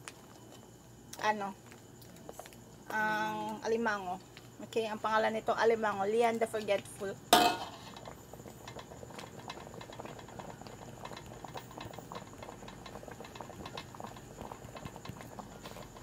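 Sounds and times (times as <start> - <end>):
thick sauce simmering and bubbling: 7.6 - 16.0.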